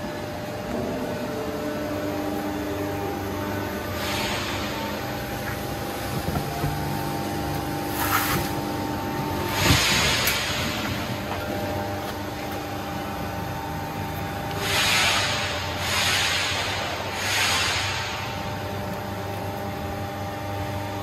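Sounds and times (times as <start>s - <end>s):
machine pump and motor humming: 0.0s - 21.0s.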